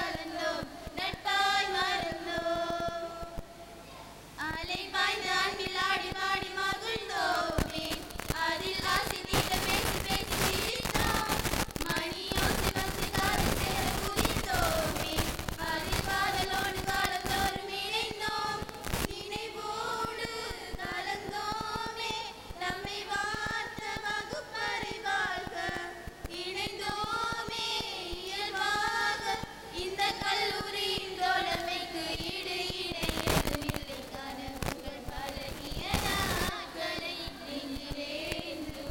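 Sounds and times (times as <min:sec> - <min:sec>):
girls singing into microphones: 0:00.0 - 0:38.9
loud bursts of noise: 0:06.0 - 0:19.3, 0:29.5 - 0:37.1.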